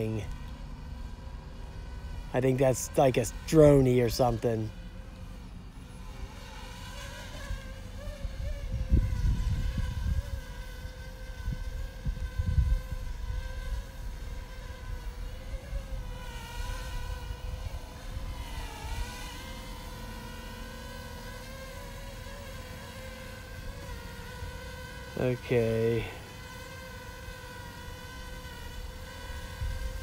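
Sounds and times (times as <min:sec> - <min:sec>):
drone propellers buzzing: 0:00.0 - 0:30.0
wind rumble on microphone: 0:08.2 - 0:19.2, 0:29.3 - 0:30.0.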